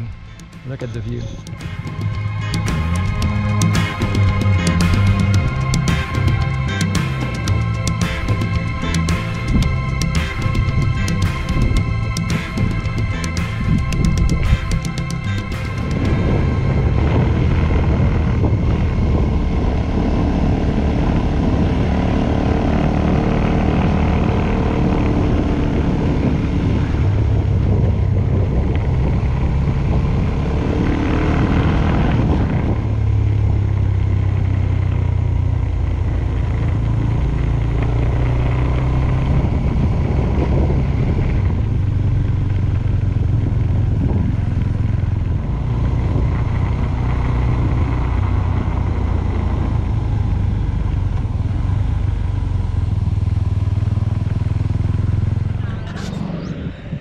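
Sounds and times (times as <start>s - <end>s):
motorcycle engine running: 0.0s - 56.1s
road noise: 0.0s - 57.0s
wind noise: 0.0s - 57.0s.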